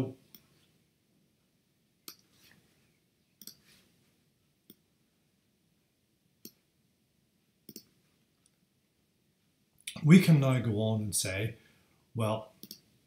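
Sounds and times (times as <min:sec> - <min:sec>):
computer mouse clicking: 0:03.4 - 0:03.6, 0:07.7 - 0:07.9, 0:12.6 - 0:12.8.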